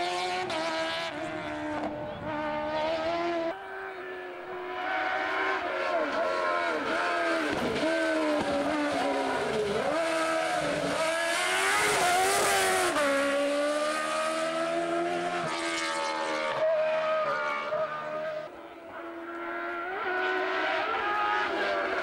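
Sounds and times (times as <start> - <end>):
racing car engine at high revs: 0.0 - 22.0.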